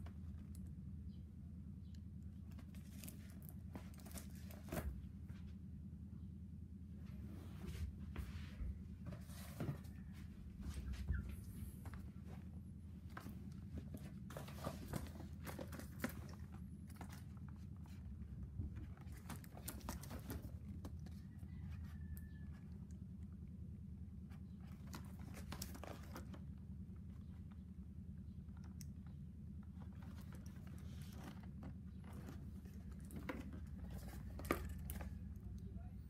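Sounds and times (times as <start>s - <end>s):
low steady hum: 0.0s - 36.0s
cardboard boxes handled: 2.6s - 5.6s, 8.9s - 22.2s, 24.4s - 26.6s, 29.9s - 35.6s.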